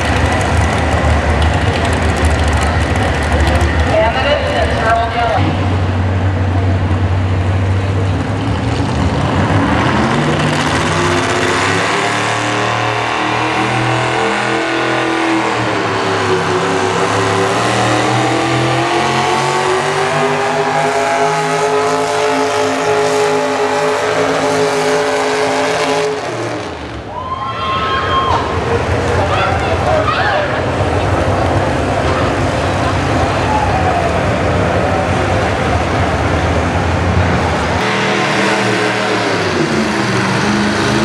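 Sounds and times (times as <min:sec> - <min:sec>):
tractor engine at full throttle: 0:00.0 - 0:27.1, 0:28.3 - 0:41.0.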